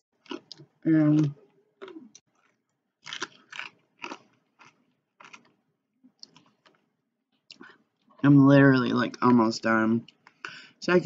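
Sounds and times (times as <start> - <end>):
chewing crunchy chips: 0.2 - 5.6, 6.2 - 6.9.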